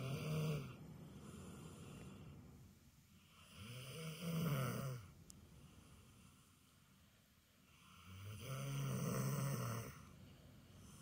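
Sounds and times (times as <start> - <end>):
dog snoring: 0.0 - 2.2, 3.3 - 5.1, 7.7 - 10.1
dog breathing softly: 0.6 - 3.3.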